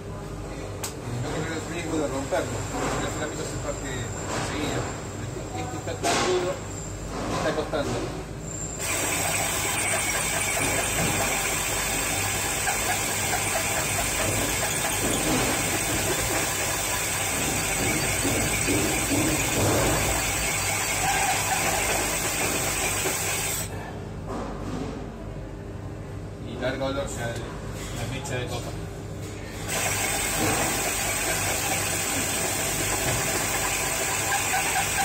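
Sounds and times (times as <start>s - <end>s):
drill grinding through ceramic tile: 8.8s - 23.6s, 29.7s - 35.0s.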